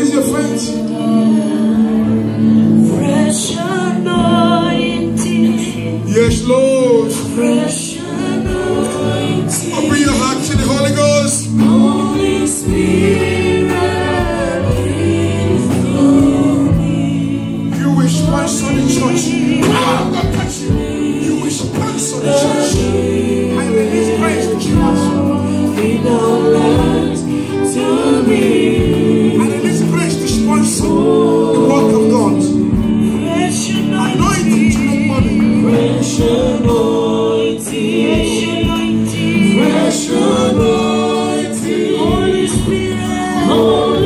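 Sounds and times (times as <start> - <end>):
congregation singing: 0.0 - 44.0.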